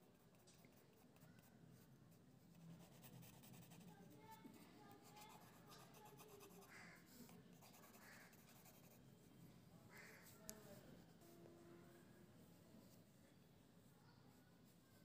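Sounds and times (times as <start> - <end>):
pencil scratching on paper: 0.0 - 1.6, 2.4 - 4.1, 4.8 - 9.0.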